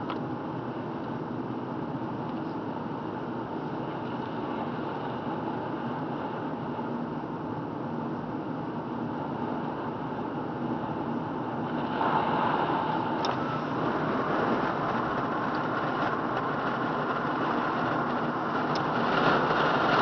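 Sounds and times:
car road and tyre noise: 0:00.0 - 0:20.0.

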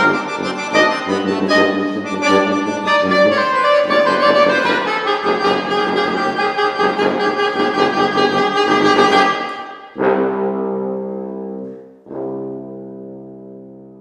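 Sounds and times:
accordion: 0:00.0 - 0:09.8
saxophone: 0:00.0 - 0:14.0
tuba: 0:00.0 - 0:14.0.

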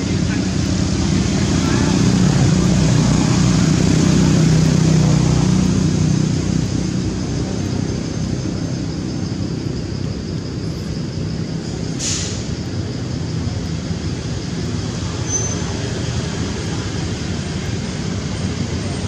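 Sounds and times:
low motor rumble: 0:00.0 - 0:19.0.

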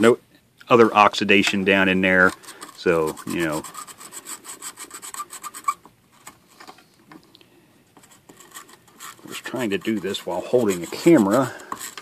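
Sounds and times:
scratch brush scrubbing circuit board: 0:01.8 - 0:05.9, 0:08.0 - 0:12.0.

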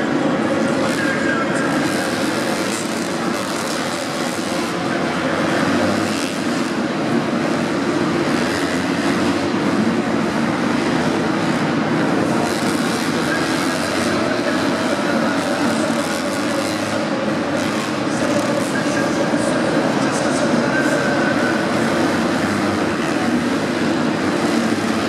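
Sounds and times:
motocross bike engines revving: 0:00.0 - 0:25.0.

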